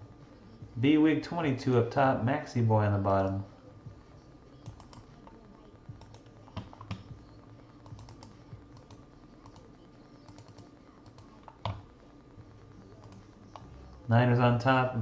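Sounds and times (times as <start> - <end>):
computer keyboard and mouse clicks: 6.0 - 7.1, 10.3 - 11.8.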